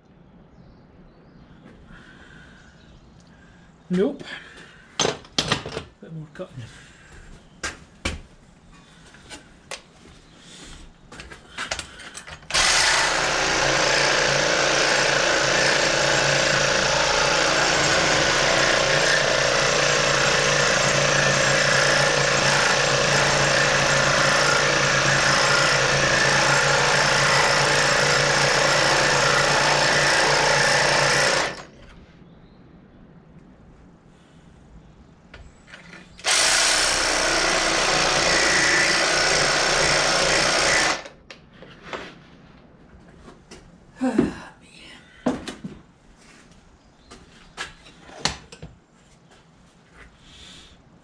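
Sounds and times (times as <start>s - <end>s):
reciprocating saw cutting metal: 12.5s - 31.7s, 36.2s - 41.2s.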